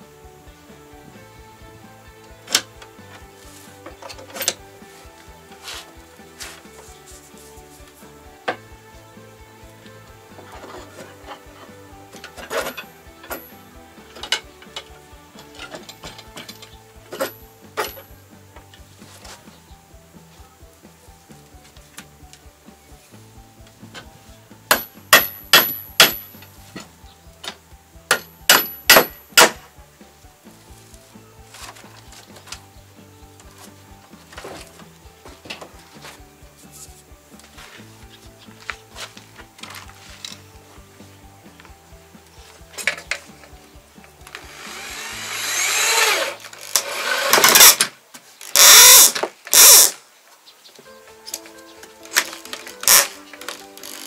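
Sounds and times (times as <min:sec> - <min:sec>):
hammer striking nails in wood: 0:24.7 - 0:26.4, 0:28.1 - 0:29.6
power drill into wood: 0:44.4 - 0:47.9, 0:48.5 - 0:50.0.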